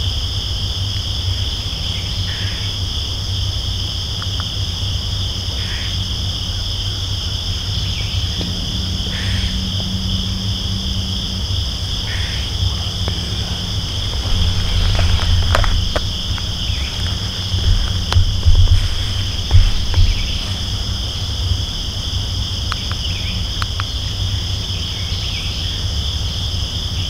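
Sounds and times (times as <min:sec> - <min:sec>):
crickets and insects chirring: 0:00.0 - 0:27.0
low rumble: 0:00.0 - 0:27.0
gear clicks and rustles: 0:06.2 - 0:26.8.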